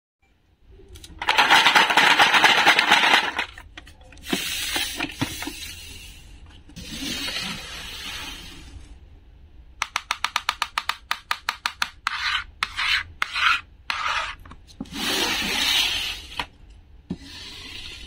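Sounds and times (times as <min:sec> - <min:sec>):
plastic toys rattling in metal tray: 0:01.2 - 0:03.6.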